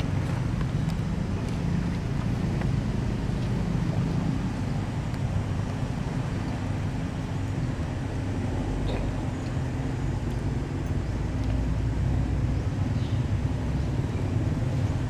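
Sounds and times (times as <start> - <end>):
low rumble and hum: 0.0 - 15.0.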